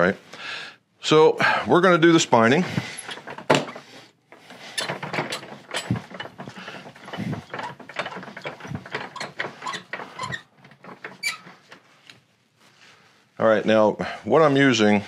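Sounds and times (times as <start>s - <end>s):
tools clicking and clattering: 2.8s - 11.9s.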